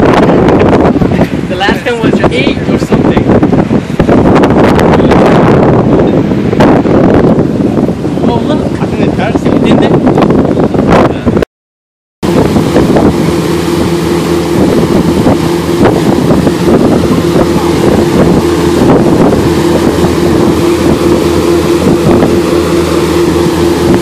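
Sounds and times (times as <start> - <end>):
boat engine droning: 0.0 - 11.4, 12.2 - 24.0
wind buffeting microphone: 0.0 - 11.4, 12.2 - 24.0
wake churning: 12.2 - 24.0.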